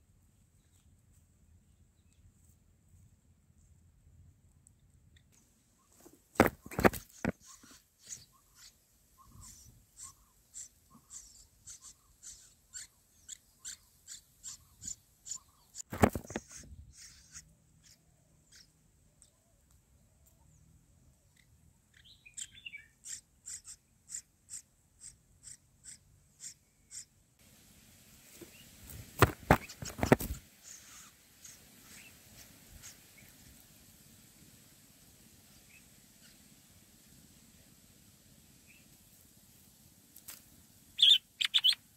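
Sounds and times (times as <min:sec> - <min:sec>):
nestlings cheeping: 0:41.0 - 0:41.9.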